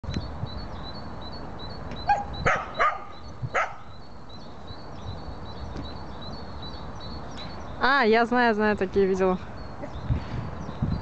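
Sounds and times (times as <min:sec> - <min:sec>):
faint high chirp: 0:00.1 - 0:07.9
dog barking: 0:02.1 - 0:03.8.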